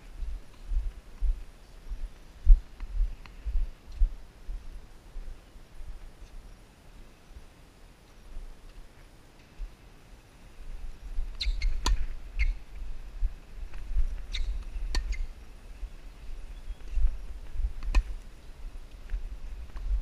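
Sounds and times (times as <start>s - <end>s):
low rumble on microphone: 10.5s - 20.0s.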